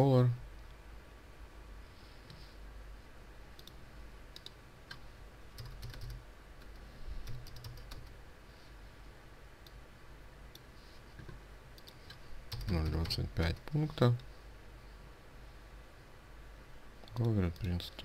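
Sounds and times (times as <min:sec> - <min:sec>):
computer keyboard and mouse clicks: 0:03.6 - 0:05.0, 0:05.6 - 0:08.1, 0:10.6 - 0:13.6.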